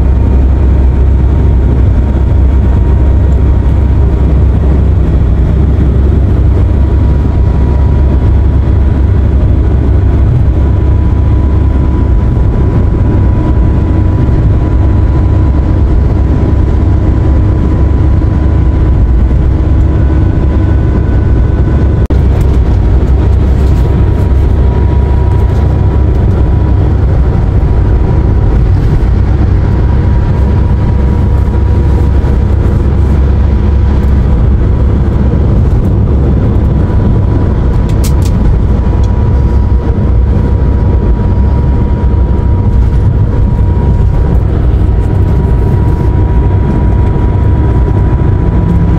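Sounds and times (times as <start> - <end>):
road and engine rumble in van: 0.0 - 48.9
thin steady whine: 0.0 - 48.9.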